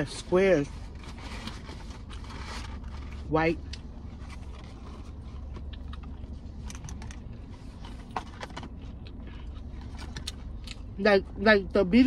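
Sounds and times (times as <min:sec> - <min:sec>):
steady low hum: 0:00.0 - 0:12.0
person chewing food: 0:02.9 - 0:10.9.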